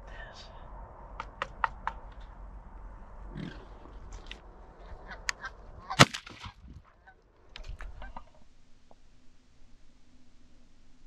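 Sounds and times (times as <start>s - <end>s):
shotgun shot: 6.0s - 6.6s.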